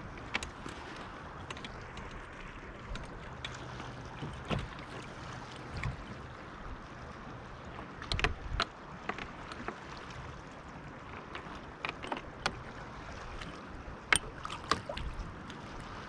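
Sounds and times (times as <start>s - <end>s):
light wind: 0.0s - 16.0s
clicks and knocks on plastic kayak: 2.9s - 6.2s, 7.8s - 9.9s, 11.1s - 15.6s.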